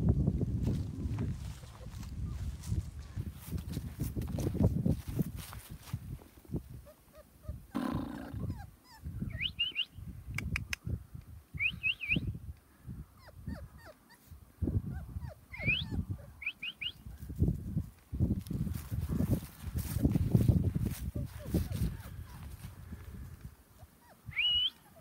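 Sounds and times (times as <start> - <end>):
footsteps on grass and leaves: 0.4 - 6.6, 17.2 - 23.6
puppy whimpering: 6.8 - 9.5, 13.2 - 16.5, 21.1 - 22.6, 23.8 - 25.0.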